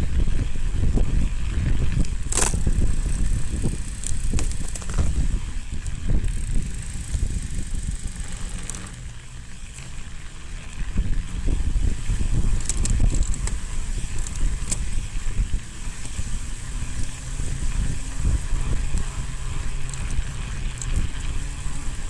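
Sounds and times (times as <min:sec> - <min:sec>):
bike tyres rumbling on snow: 0:00.0 - 0:22.0
bike knocks and rattles: 0:01.6 - 0:09.0, 0:12.3 - 0:15.0.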